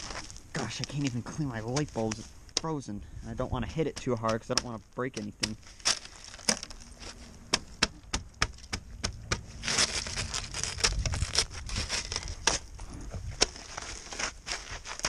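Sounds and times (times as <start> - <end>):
ice and snow scraped off car lamp: 0.0 - 2.3, 9.5 - 12.7, 13.3 - 15.0.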